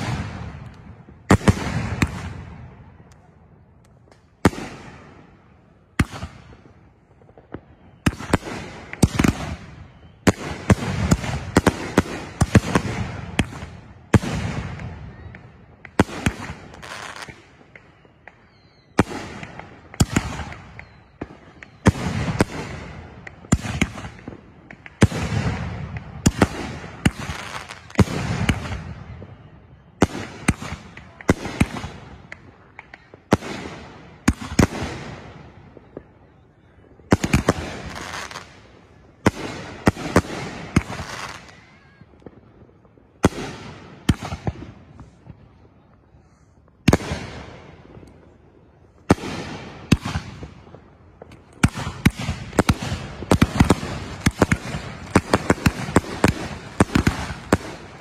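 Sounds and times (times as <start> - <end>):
fireworks bangs: 0.0 - 58.0.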